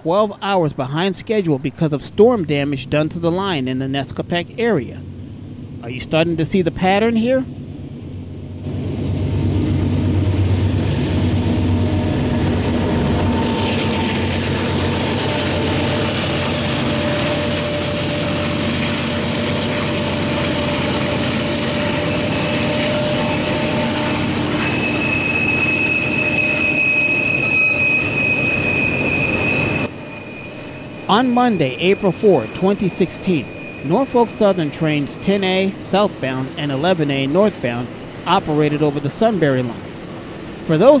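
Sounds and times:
locomotive engines rumbling: 0:00.0 - 0:41.0
wheels on rail: 0:06.8 - 0:41.0
high-pitched wheel squeal: 0:11.5 - 0:38.2.

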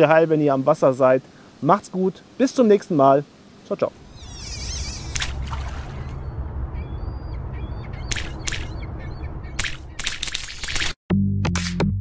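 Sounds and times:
steady low drone: 0:04.0 - 0:09.6
bird calls: 0:04.0 - 0:10.3
short noisy swishes: 0:04.1 - 0:06.3.

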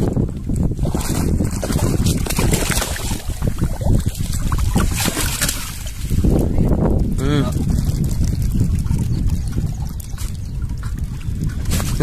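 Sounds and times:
wind rumbling on microphone: 0:00.0 - 0:12.0
fish splashing at water surface: 0:00.7 - 0:06.2.

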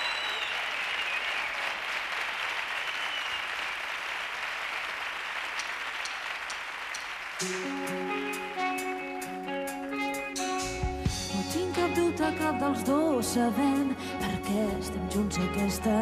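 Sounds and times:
audience applauding: 0:00.0 - 0:08.7
live band intro: 0:07.4 - 0:15.2.

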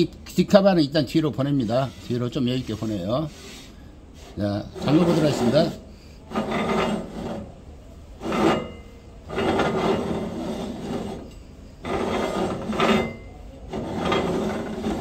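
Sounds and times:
metal ring grating on metal: 0:01.4 - 0:03.5, 0:04.6 - 0:07.5, 0:08.2 - 0:15.0.

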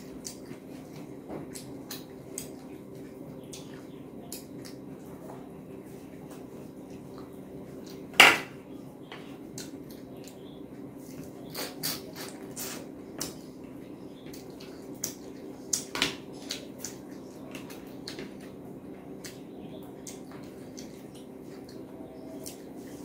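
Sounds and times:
chewing: 0:19.2 - 0:23.0.

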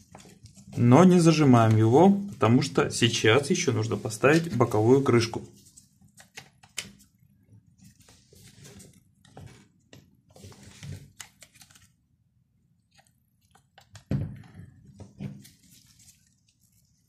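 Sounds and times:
glove rubbing plastic: 0:15.1 - 0:17.0.

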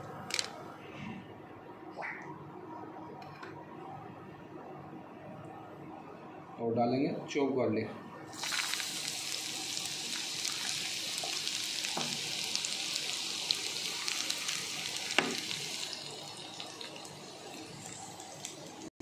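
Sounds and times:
garlic and chillies sizzling in oil: 0:08.3 - 0:18.9.

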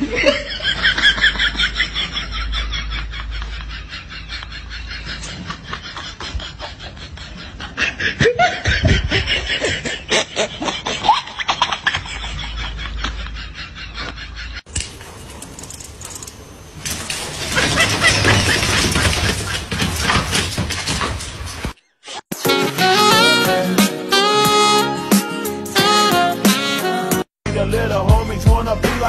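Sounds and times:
person laughing: 0:00.0 - 0:14.6.

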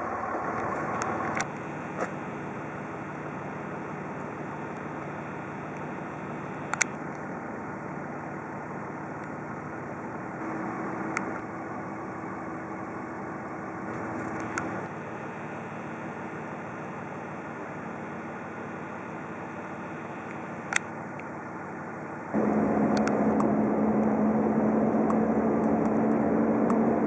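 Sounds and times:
road noise: 0:00.0 - 0:02.6, 0:21.6 - 0:27.0
truck engine running: 0:00.0 - 0:15.0, 0:20.0 - 0:27.0.

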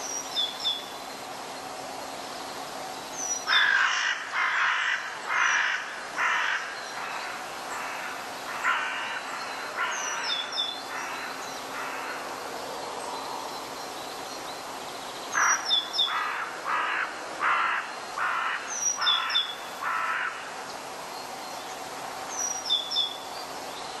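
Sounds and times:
harsh bird calls: 0:15.3 - 0:20.6.

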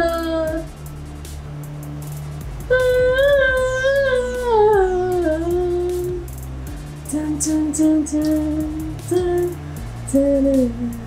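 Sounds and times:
low held music notes: 0:00.0 - 0:11.0
person singing: 0:02.7 - 0:06.3, 0:07.1 - 0:11.0.

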